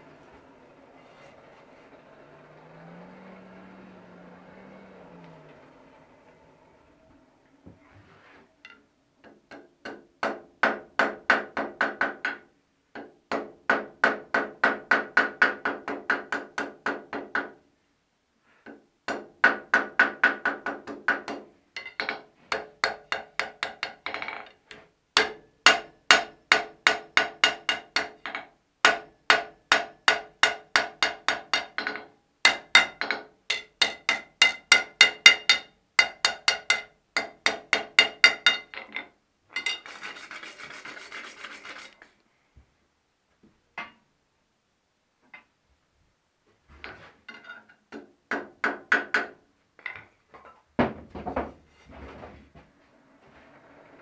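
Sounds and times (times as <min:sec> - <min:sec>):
metal scraping: 0:00.0 - 0:08.8, 0:38.4 - 0:42.1
hammer striking iron on anvil: 0:25.2 - 0:38.8.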